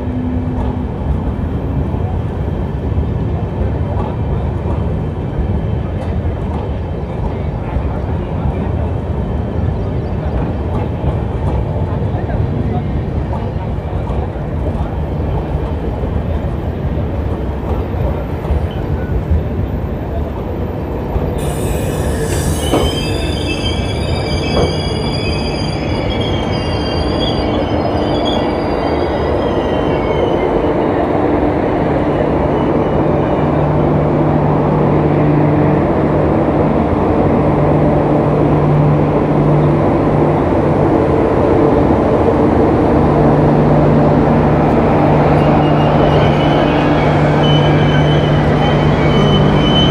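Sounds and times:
train wheels squealing: 0:21.4 - 0:30.6, 0:45.3 - 0:49.9.

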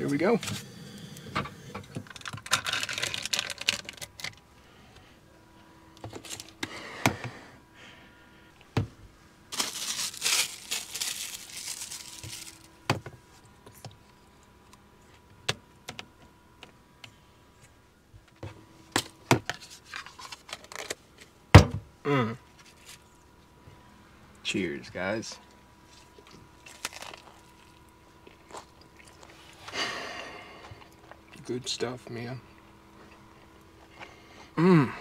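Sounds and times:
packaging crinkling: 0:02.0 - 0:04.4, 0:09.5 - 0:12.7, 0:26.6 - 0:27.8.

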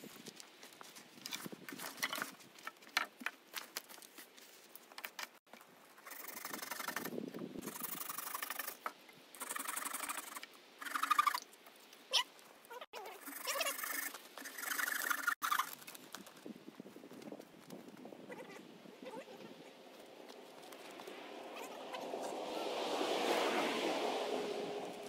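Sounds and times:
sticks scraping and rustling: 0:00.0 - 0:07.2.

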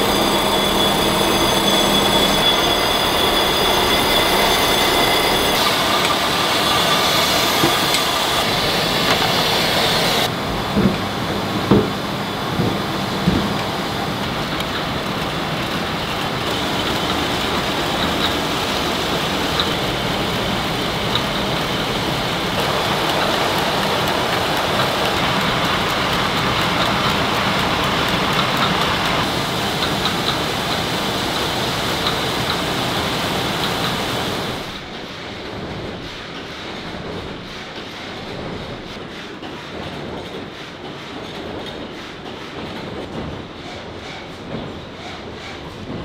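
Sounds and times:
faint high whine: 0:00.0 - 0:08.6
winding machines clattering: 0:00.0 - 0:46.0.

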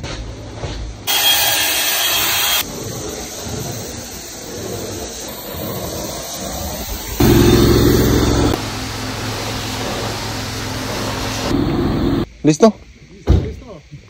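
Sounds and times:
cordless drill spinning scrub brush: 0:01.1 - 0:02.6.

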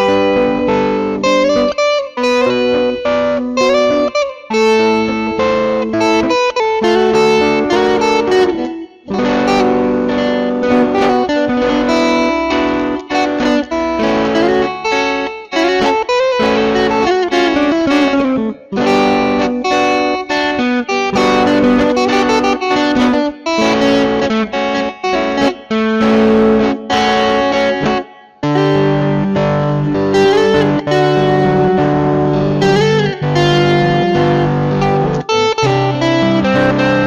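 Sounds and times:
instrumental rock ballad on guitars: 0:00.0 - 0:37.0.

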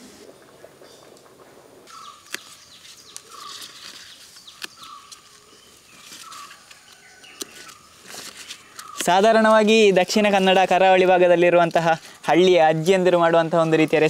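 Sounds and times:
birds chirping: 0:00.0 - 0:01.3, 0:01.9 - 0:14.0
leaf stalks snapping: 0:01.9 - 0:11.0.

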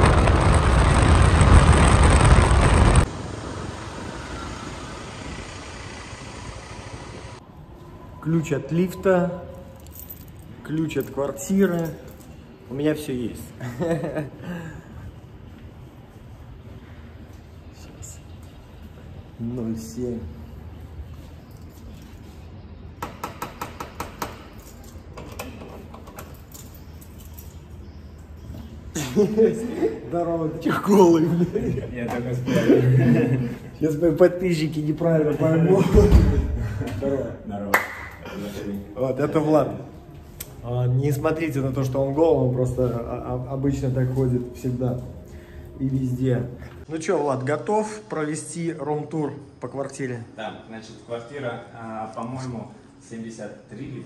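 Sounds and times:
deep rumble: 0:00.0 - 0:07.4
wind and road rush: 0:00.0 - 0:07.4
quiet street background: 0:00.0 - 0:54.0.

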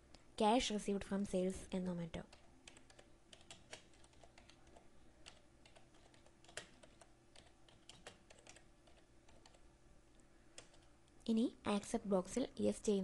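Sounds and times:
faint steady hum: 0:00.0 - 0:13.0
typing on computer keyboard: 0:02.3 - 0:09.6, 0:10.6 - 0:10.9.

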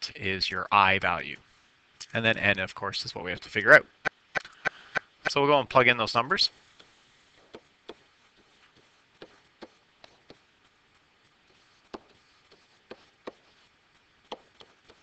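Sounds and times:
low hiss: 0:00.0 - 0:15.0
stylus tapping on surface: 0:11.9 - 0:12.2.

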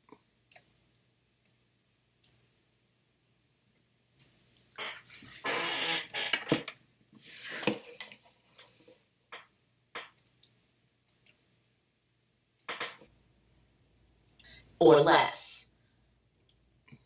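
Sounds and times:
computer mouse clicks: 0:10.0 - 0:11.4, 0:12.6 - 0:13.0, 0:16.3 - 0:16.6.

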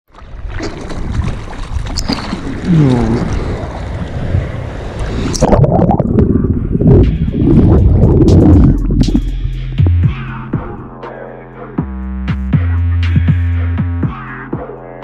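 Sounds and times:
sea water splashing: 0:00.1 - 0:09.3
muffled underwater rush: 0:00.1 - 0:11.0
wind on microphone: 0:00.3 - 0:10.9.

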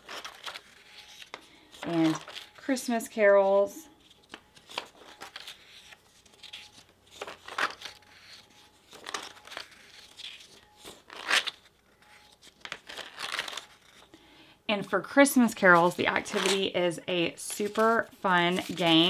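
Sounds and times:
book pages turning: 0:00.0 - 0:02.9, 0:03.9 - 0:14.1, 0:15.4 - 0:19.0.

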